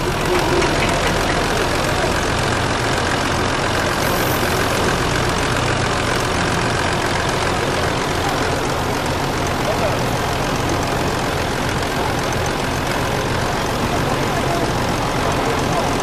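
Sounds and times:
broad mechanical noise: 0:00.0 - 0:16.0
diesel engine humming: 0:00.0 - 0:16.0.

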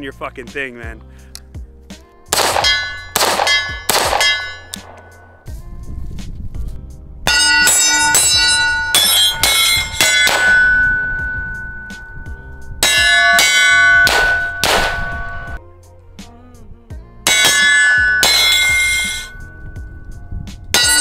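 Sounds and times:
bullets clanging on steel targets: 0:02.4 - 0:05.3, 0:07.3 - 0:15.6, 0:17.3 - 0:19.5, 0:20.7 - 0:21.0.

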